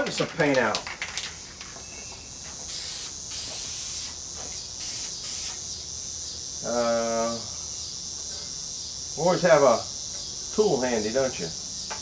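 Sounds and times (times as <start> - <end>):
spray paint can hissing: 2.6 - 4.2, 4.8 - 5.8.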